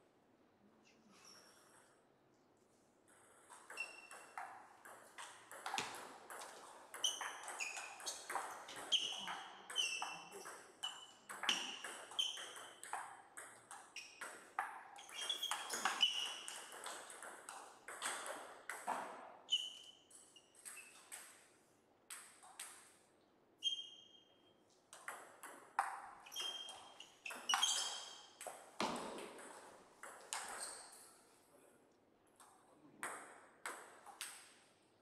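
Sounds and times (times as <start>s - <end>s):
table tennis ball pinging: 3.1s - 21.4s, 24.9s - 31.0s.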